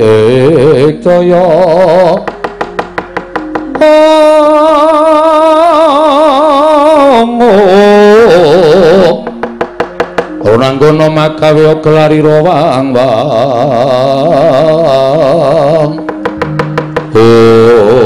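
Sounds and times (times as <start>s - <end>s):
person singing with vibrato: 0.0s - 2.4s, 3.5s - 9.5s, 10.3s - 18.0s
rapid wooden knocks: 2.2s - 3.9s, 9.2s - 10.5s, 16.0s - 17.3s.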